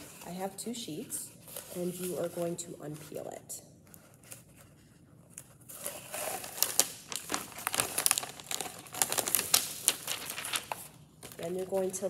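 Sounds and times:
plastic film crinkling and snapping: 3.8s - 12.0s.

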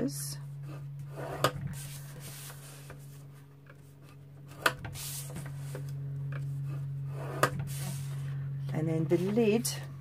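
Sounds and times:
scratchy scrape: 0.6s - 3.3s, 6.6s - 8.3s.

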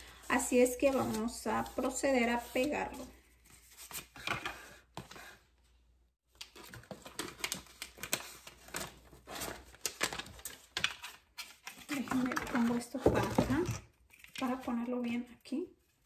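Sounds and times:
contact paper crackling and rustling: 6.3s - 13.4s.

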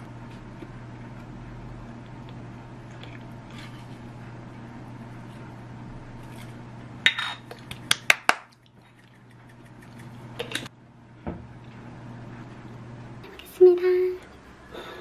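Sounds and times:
steady low hum: 0.0s - 15.0s
kitchenware clinking: 7.1s - 7.6s.

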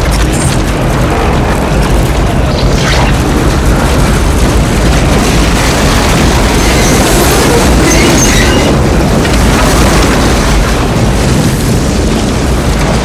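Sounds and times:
deep rumble: 0.0s - 13.0s
loud wind noise: 0.0s - 13.0s
high-pitched squeals: 6.3s - 8.8s.

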